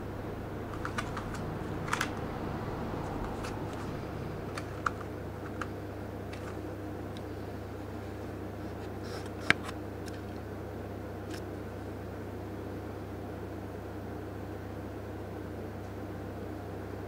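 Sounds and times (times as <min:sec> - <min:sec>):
steady low hum: 0:00.0 - 0:12.7.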